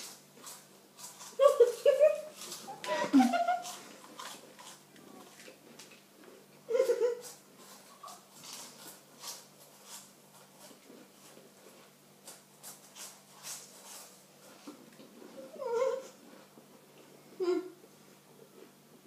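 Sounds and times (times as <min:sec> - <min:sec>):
chewing crunchy crackers: 0:00.0 - 0:06.6, 0:07.2 - 0:15.4.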